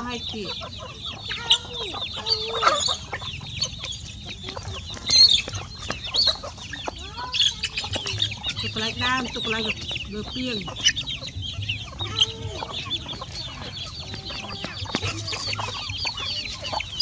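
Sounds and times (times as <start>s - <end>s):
chicks peeping: 0.0s - 17.0s
hens clucking: 0.0s - 17.0s
sharp chicken calls: 0.0s - 17.0s.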